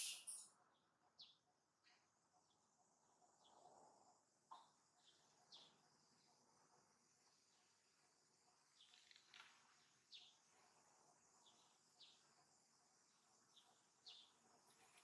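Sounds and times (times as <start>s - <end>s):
high short chirping calls: 0.0s - 0.5s.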